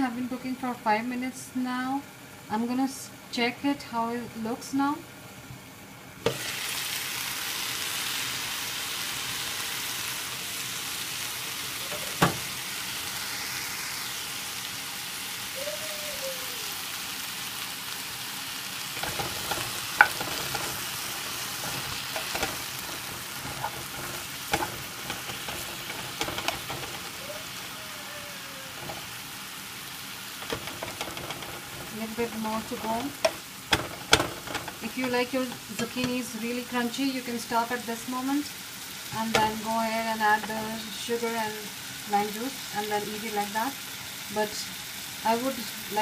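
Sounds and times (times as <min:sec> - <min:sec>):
zucchini sizzling in oil: 0:00.0 - 0:46.0
spatula knocking on pan: 0:19.0 - 0:27.2, 0:28.7 - 0:29.1, 0:30.4 - 0:36.1
wooden spatula scraping pan: 0:19.0 - 0:27.2, 0:28.7 - 0:29.2, 0:30.4 - 0:36.1.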